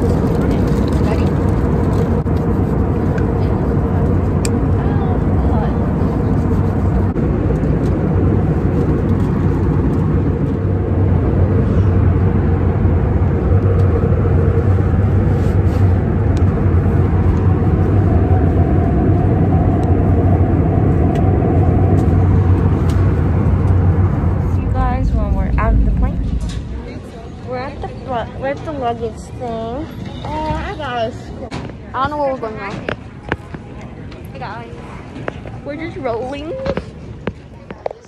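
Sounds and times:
jet airliner cabin drone: 0.0 - 38.0.

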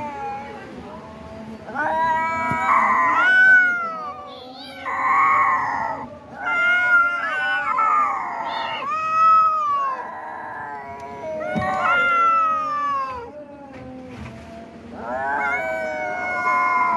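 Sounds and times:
kittens yowling: 1.7 - 14.0, 15.0 - 16.9.

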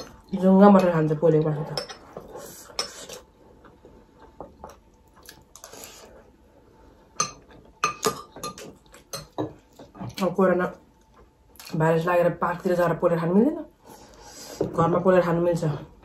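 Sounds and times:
cutlery clinking against glass bowls: 7.2 - 9.6.

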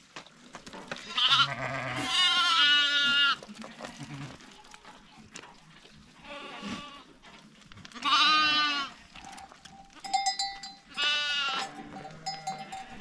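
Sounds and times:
sheep and lambs bleating: 1.0 - 4.8, 6.2 - 7.2, 7.9 - 9.1, 9.9 - 13.0
steady ringing tone: 11.6 - 13.0.

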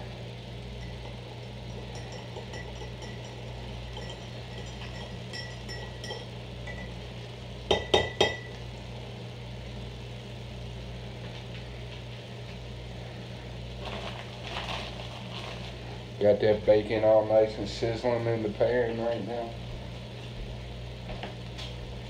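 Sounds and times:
steady low hum: 0.0 - 22.0
spoon stirring coffee in a mug: 0.8 - 7.0, 7.7 - 8.6
spoon clinking on mug rim: 1.7 - 6.9.

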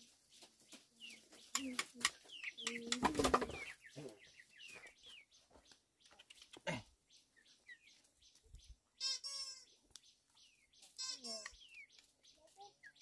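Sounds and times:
chickens peeping: 0.0 - 13.0
wing flapping: 2.8 - 3.8.

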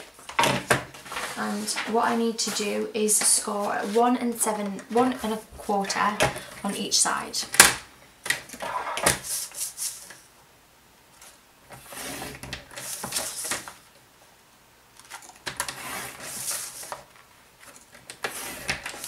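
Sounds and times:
paper rustling: 0.0 - 4.3, 11.2 - 13.8, 15.0 - 19.0
blade scraping across cardstock: 11.8 - 13.6, 18.2 - 19.0.

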